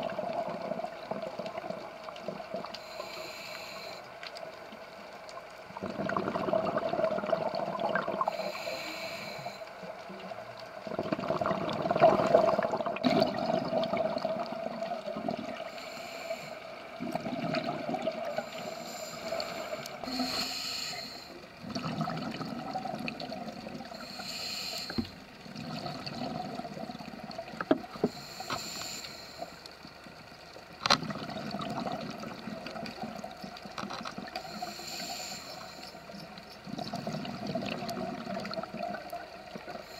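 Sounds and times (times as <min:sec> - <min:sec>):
exhaled bubbles gurgling: 0:00.0 - 0:03.0, 0:05.7 - 0:08.8, 0:10.2 - 0:20.4, 0:21.5 - 0:28.5, 0:30.8 - 0:39.9
faint steady hum: 0:00.0 - 0:39.9
regulator inhale hiss: 0:02.6 - 0:04.5, 0:08.2 - 0:10.2, 0:15.5 - 0:17.2, 0:18.1 - 0:21.5, 0:23.8 - 0:25.4, 0:27.9 - 0:29.9, 0:34.3 - 0:37.4, 0:39.5 - 0:39.9.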